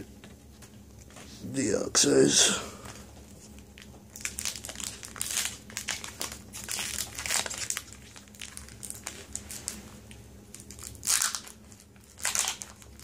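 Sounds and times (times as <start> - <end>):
foil wrapper crinkling: 2.9 - 13.0.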